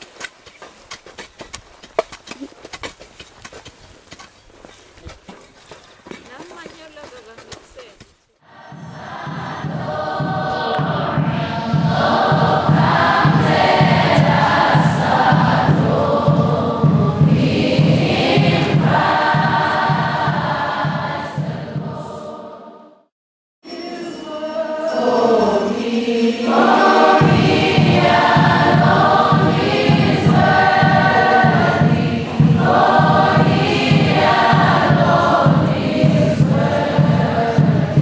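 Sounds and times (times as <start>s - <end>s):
choir singing: 8.4s - 23.1s, 23.7s - 38.0s
steady low beat: 8.7s - 22.2s, 26.6s - 38.0s.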